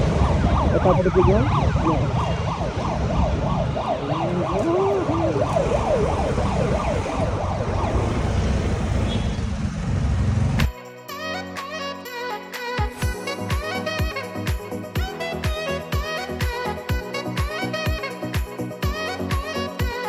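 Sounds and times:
rising and falling tones: 0:00.0 - 0:09.0
traffic rumble: 0:00.0 - 0:10.7.

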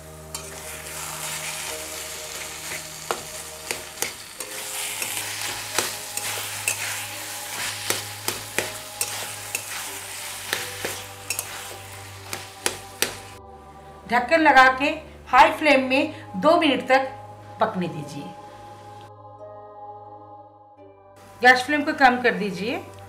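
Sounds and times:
frying sizzle: 0:00.0 - 0:13.4
metal spatula scraping a pan: 0:00.3 - 0:13.4
spatula clicking on pan: 0:03.1 - 0:07.0, 0:07.8 - 0:09.8, 0:10.5 - 0:11.6, 0:12.2 - 0:13.3.

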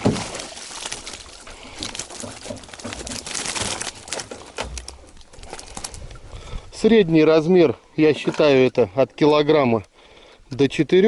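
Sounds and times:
clicks and rustles: 0:00.0 - 0:06.2
water dripping off fish: 0:00.0 - 0:06.2.

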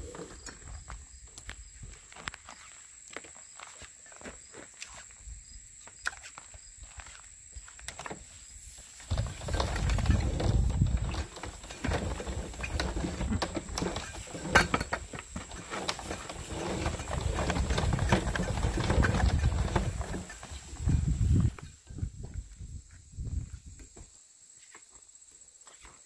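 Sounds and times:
pipe running over metal roller: 0:09.1 - 0:21.6.

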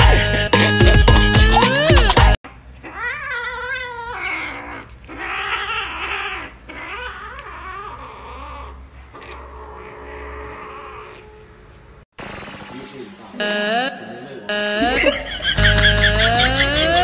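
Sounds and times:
loud music: 0:00.0 - 0:02.4, 0:13.4 - 0:17.0.

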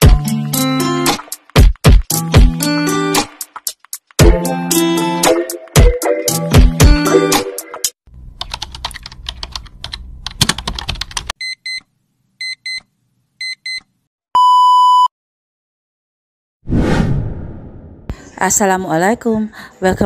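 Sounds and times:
short electronic beeps: 0:14.4 - 0:15.1.

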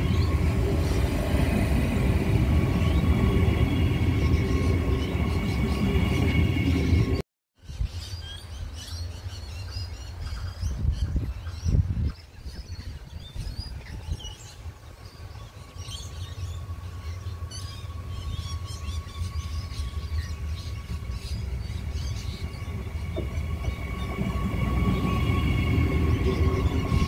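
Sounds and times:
birds chirping: 0:00.0 - 0:07.2, 0:08.6 - 0:27.0
electric train whine: 0:00.0 - 0:07.2, 0:13.8 - 0:27.0.

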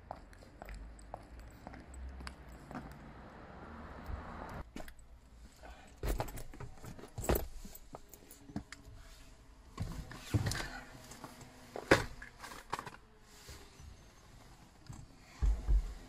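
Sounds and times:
rustling bags and clothing: 0:04.6 - 0:16.0.

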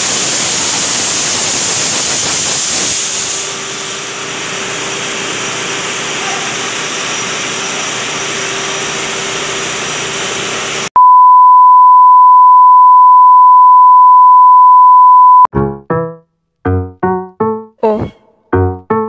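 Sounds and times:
ship engine room noise: 0:00.0 - 0:10.9.

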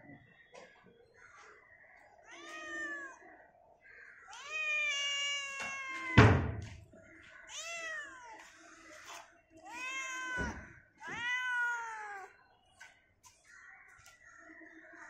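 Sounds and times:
cat meowing: 0:02.2 - 0:03.2, 0:04.3 - 0:06.3, 0:07.5 - 0:08.4, 0:09.6 - 0:12.3.

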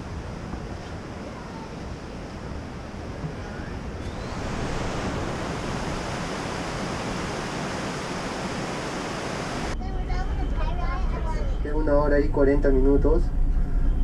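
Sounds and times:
stream rushing over stones: 0:04.2 - 0:09.8.

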